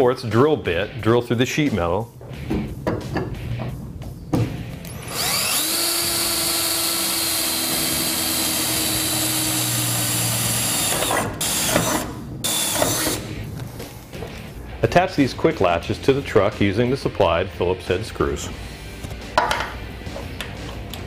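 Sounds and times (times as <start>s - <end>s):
power drill drilling sheet metal: 4.9s - 13.2s.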